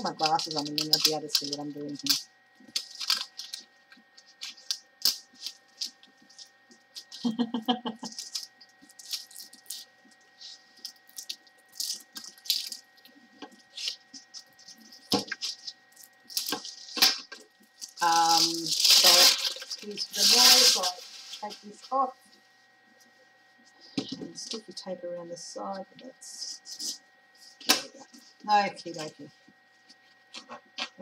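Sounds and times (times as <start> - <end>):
plastic wrapping rustling: 0.0 - 7.4, 8.0 - 22.5.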